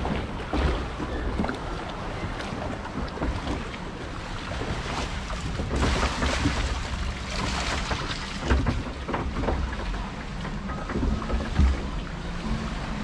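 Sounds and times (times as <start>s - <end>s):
water rushing and splashing: 0.0s - 13.0s
wind rumble on microphone: 0.0s - 13.0s.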